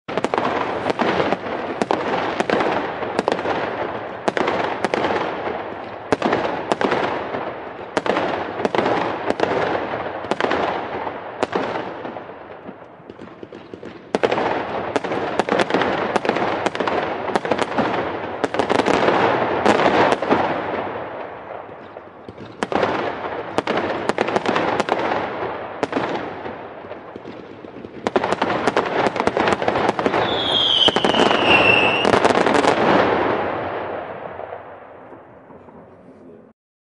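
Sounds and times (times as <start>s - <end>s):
fireworks banging and crackling: 0.1s - 36.5s
firework whistle falling: 30.1s - 32.3s.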